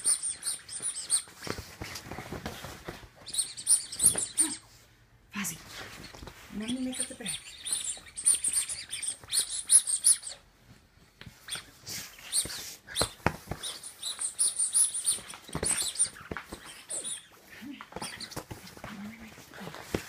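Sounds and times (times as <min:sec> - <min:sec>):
squeaky dog toy squeaking: 0:00.0 - 0:01.4, 0:03.2 - 0:04.7, 0:06.6 - 0:10.4, 0:12.3 - 0:17.4.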